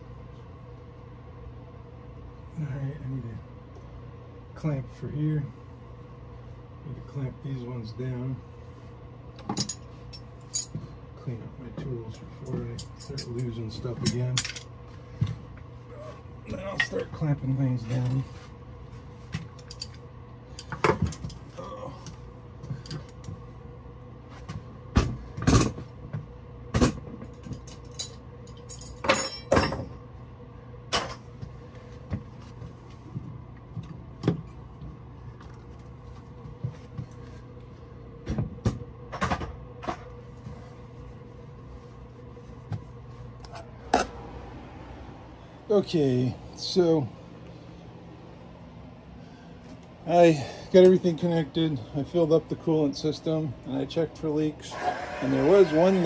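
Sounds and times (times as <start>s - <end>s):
steady low hum: 0.0s - 56.0s
metal tools knocking and clanking: 9.4s - 10.8s.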